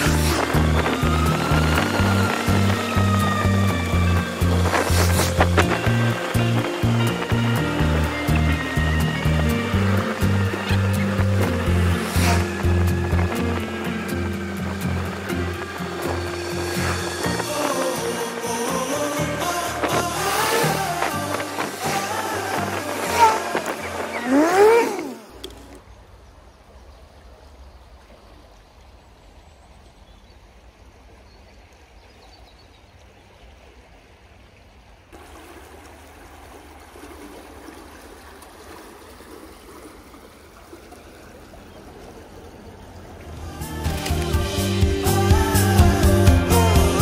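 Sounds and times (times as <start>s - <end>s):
low rumble: 0.0s - 17.6s
background music: 0.0s - 24.8s, 43.3s - 47.0s
river rushing: 0.0s - 26.1s, 33.2s - 47.0s.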